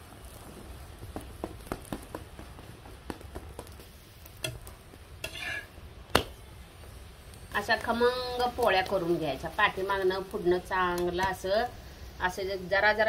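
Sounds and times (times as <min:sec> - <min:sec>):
metal spatula tapping flatbread: 0:01.1 - 0:06.4.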